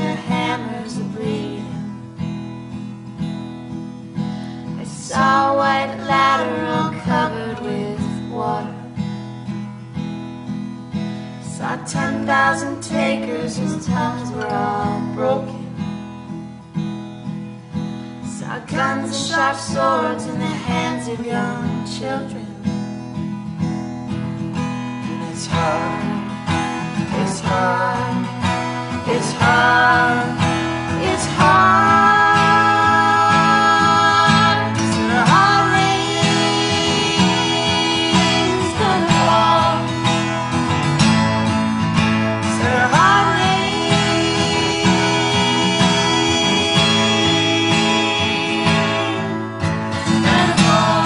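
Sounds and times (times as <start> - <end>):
woman singing: 0.0 - 2.0, 4.6 - 9.1, 11.4 - 15.8, 18.2 - 22.8, 25.2 - 40.5, 42.4 - 51.0
acoustic guitar strumming: 0.0 - 51.0.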